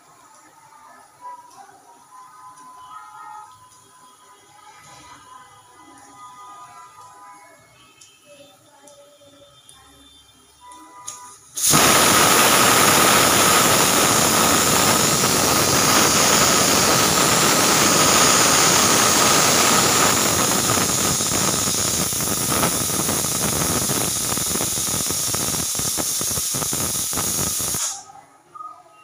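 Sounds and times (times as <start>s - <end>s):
pressure cooker whistling: 11.6s - 28.0s
steam hissing: 11.6s - 28.0s.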